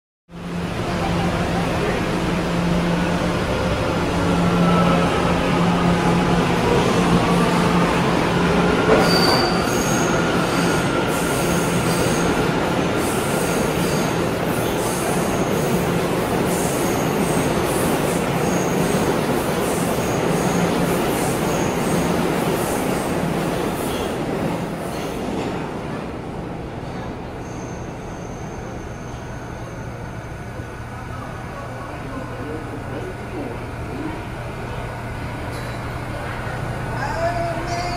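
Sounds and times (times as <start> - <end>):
train wheels rumbling on rails: 0.6 - 27.9
high-pitched wheel squeals: 8.9 - 10.8.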